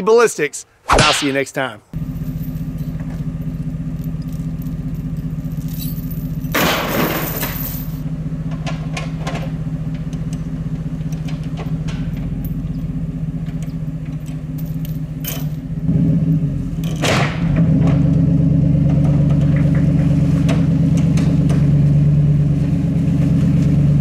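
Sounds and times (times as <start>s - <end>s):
pickup engine idling: 2.0s - 24.0s
small metal clinks: 2.2s - 8.0s, 12.0s - 13.0s, 13.6s - 15.6s.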